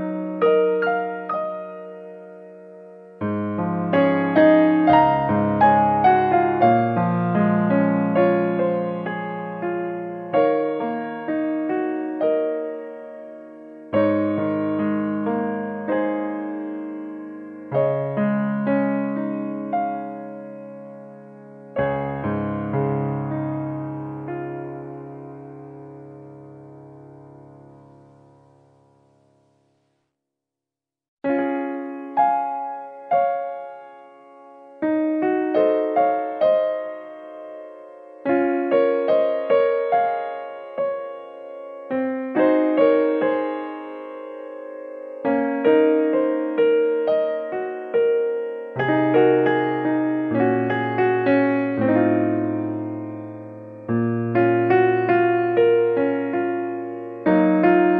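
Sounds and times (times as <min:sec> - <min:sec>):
soft piano chords: 0:00.0 - 0:29.9, 0:31.2 - 0:57.9.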